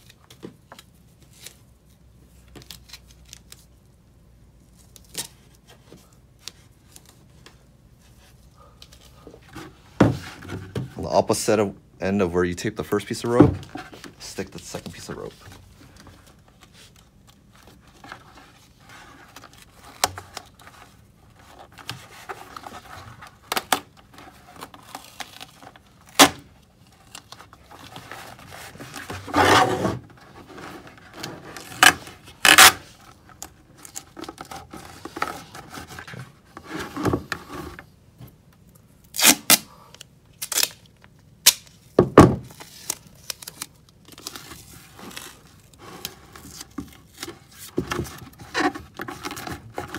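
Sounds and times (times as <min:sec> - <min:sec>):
tape tearing: 0:04.7 - 0:05.7, 0:21.4 - 0:36.2, 0:39.0 - 0:49.9
plastic bucket knocks and scrapes: 0:09.5 - 0:11.0.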